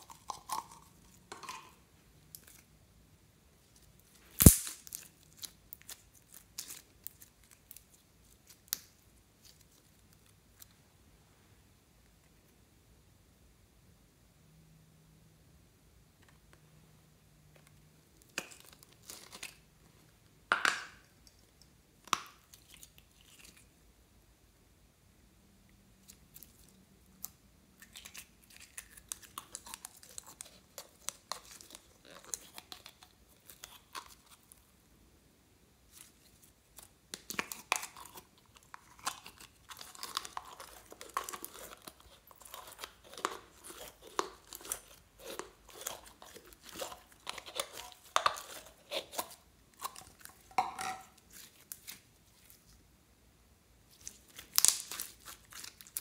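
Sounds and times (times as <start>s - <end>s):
plastic jar crinkling: 0.0s - 2.7s, 18.2s - 19.7s, 27.8s - 34.6s, 35.9s - 52.8s, 53.9s - 56.0s
slime crackling and popping: 4.3s - 10.3s, 35.9s - 52.6s, 53.9s - 56.0s.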